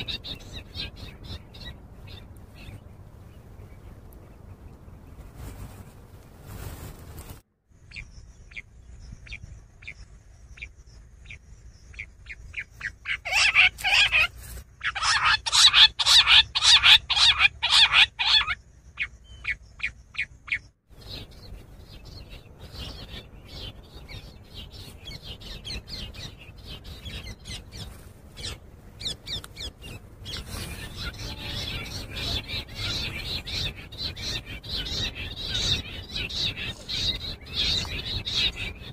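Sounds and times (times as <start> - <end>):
quail calling: 0.0 - 2.8, 12.0 - 20.6, 25.1 - 38.9
chirping notes: 14.9 - 38.9.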